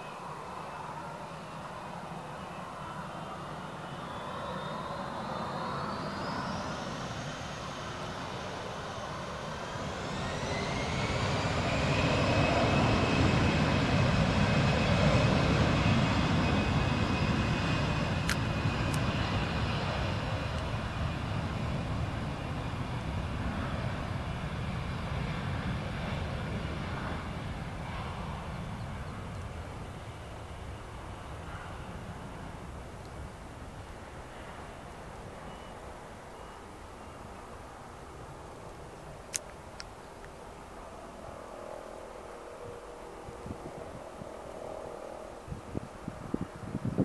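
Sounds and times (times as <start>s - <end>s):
jet engines spooling up: 0.0s - 47.0s
loud jet roar: 4.0s - 30.4s.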